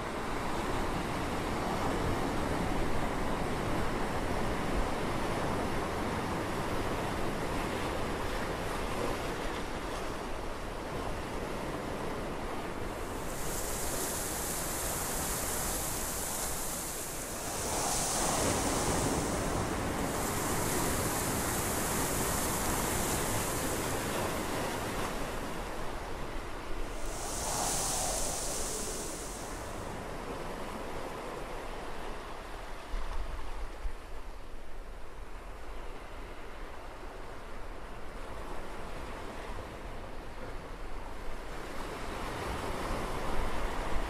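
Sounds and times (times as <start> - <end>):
ocean waves surging: 12.7 - 26.0, 26.7 - 30.8
high hiss: 13.0 - 25.3, 26.8 - 30.3.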